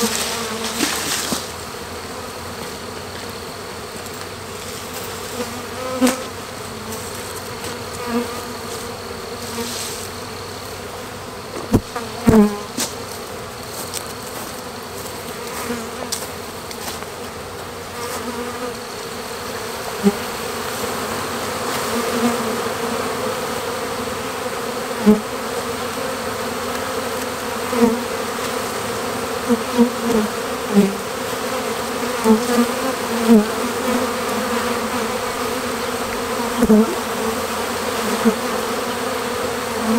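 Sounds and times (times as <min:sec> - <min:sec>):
bee swarm buzzing: 0:00.0 - 0:39.9
bees flying past: 0:00.0 - 0:39.9.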